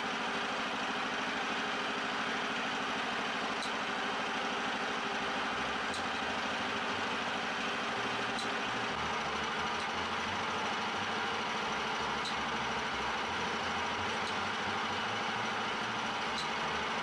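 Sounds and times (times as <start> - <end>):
small petrol engine idling: 0.0 - 17.0.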